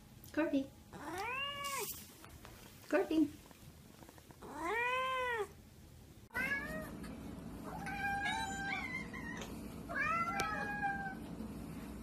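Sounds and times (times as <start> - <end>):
faint steady hum: 0.0 - 12.0
cats meowing: 0.9 - 1.9, 4.4 - 5.5, 6.3 - 7.0, 7.6 - 11.3.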